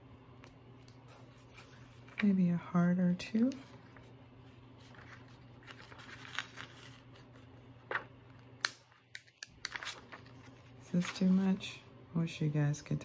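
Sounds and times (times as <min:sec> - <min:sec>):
faint steady hum: 0:00.0 - 0:13.0
plastic sticker sheet rustling: 0:04.8 - 0:11.7.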